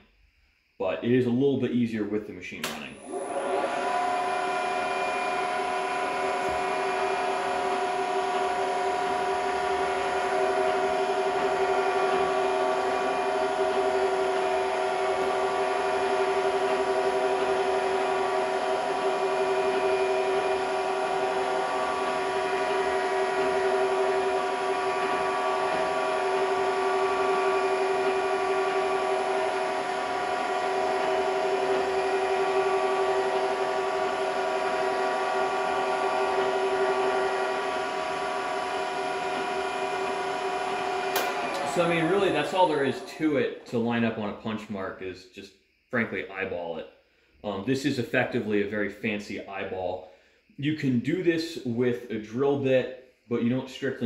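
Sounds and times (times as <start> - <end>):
milling machine whine: 2.6 - 45.0.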